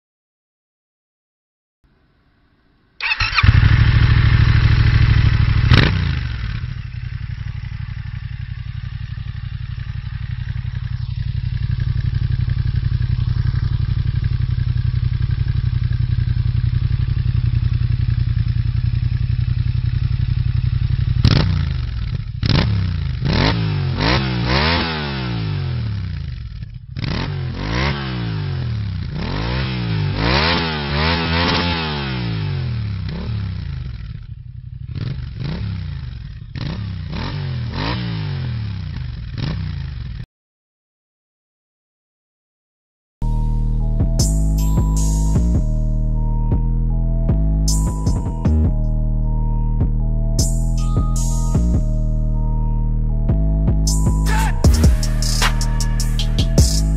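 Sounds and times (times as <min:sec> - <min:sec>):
motorcycle engine idling: 0:03.0 - 0:24.2, 0:25.7 - 0:27.7, 0:32.7 - 0:37.2, 0:53.3 - 0:56.9
motorcycle engine revving: 0:03.0 - 0:40.2, 0:53.2 - 0:56.9.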